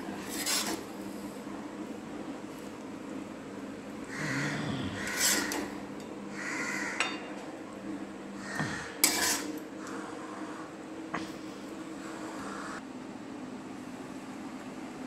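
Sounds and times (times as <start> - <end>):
metal spoon scraping metal pan: 0.2 - 0.8, 5.0 - 5.7, 9.0 - 9.6.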